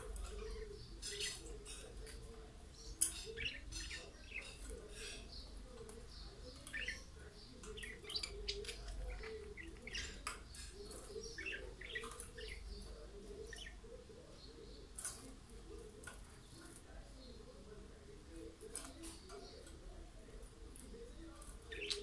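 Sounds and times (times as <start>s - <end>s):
budgerigars chirping: 0.0s - 2.2s, 2.8s - 14.8s, 21.6s - 22.0s.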